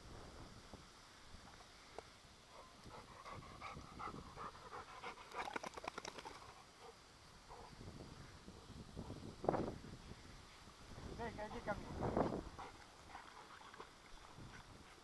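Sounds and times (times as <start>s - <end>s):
dog panting: 2.5s - 5.6s, 11.5s - 15.0s.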